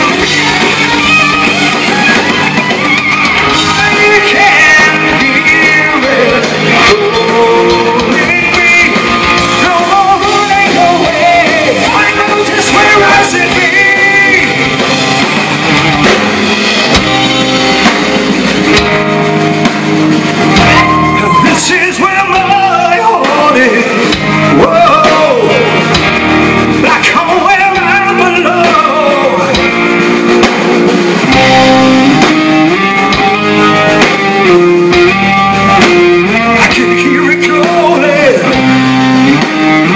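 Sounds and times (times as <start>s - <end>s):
drum kit: 0.0s - 39.9s
electric guitars: 0.0s - 39.9s
person singing lead vocal: 3.4s - 15.0s, 20.5s - 26.0s, 26.6s - 34.1s, 35.4s - 39.9s.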